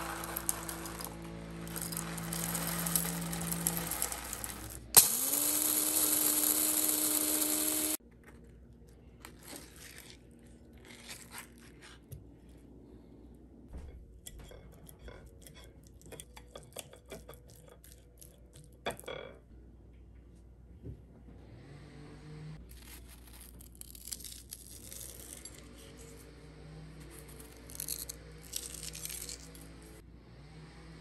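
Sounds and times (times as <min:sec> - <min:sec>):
coffee grinder grinding beans: 0:00.0 - 0:08.0, 0:27.0 - 0:30.0
spoon scraping: 0:00.0 - 0:08.0, 0:14.3 - 0:18.8, 0:27.1 - 0:29.6.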